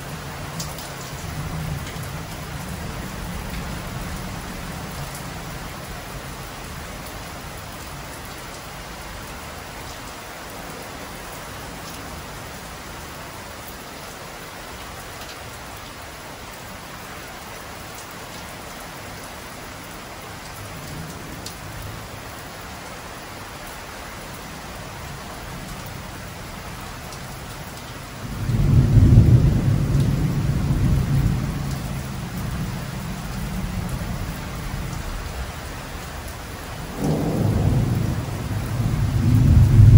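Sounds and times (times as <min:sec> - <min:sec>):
heavy rain falling: 0:00.0 - 0:39.9
low rumble of thunder: 0:28.2 - 0:39.9.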